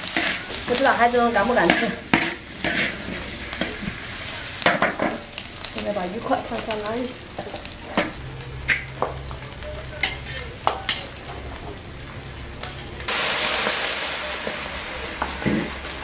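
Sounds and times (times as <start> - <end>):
spatula clinking and scraping: 0.0 - 0.8, 1.4 - 3.9, 10.0 - 11.3
liquid sizzling in hot wok: 0.0 - 16.0
vegetables frying in wok: 0.0 - 16.0.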